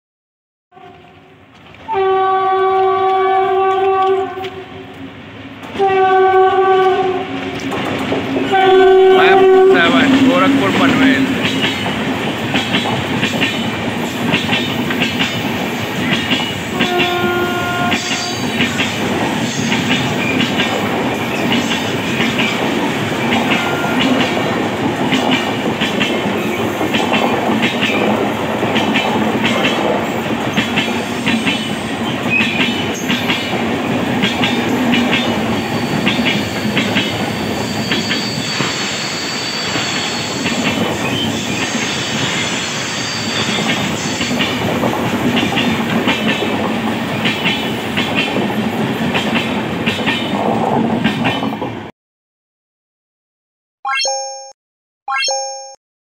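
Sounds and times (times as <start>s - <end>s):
brief tone: 53.9s - 55.8s.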